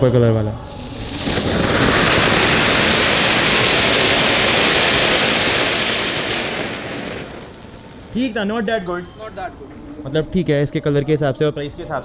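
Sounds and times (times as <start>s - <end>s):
firework fountain hissing: 0.4s - 9.0s.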